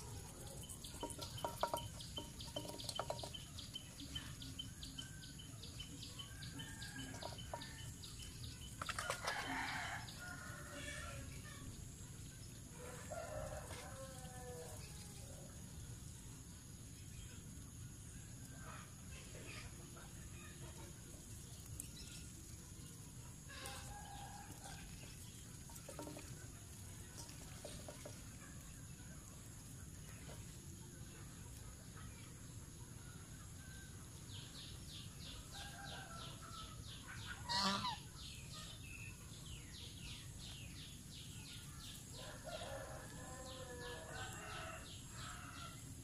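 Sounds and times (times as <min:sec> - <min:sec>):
goose bill clicking on steel bowl: 0:00.6 - 0:03.6
rooster crowing: 0:09.1 - 0:11.2, 0:12.8 - 0:14.8, 0:42.2 - 0:45.8
chickens calling: 0:37.1 - 0:38.8
fowl calls: 0:37.4 - 0:38.1.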